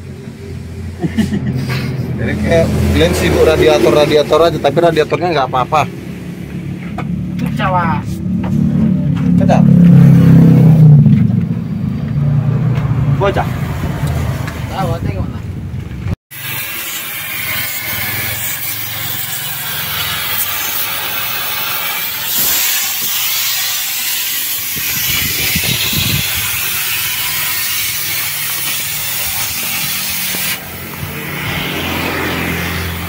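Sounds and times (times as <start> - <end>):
gas cutting torch hissing: 16.3 - 33.0.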